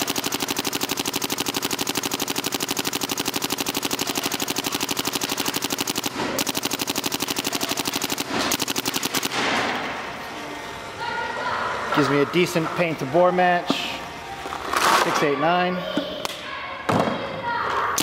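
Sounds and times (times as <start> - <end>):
paintball marker rapid firing: 0.0 - 9.9.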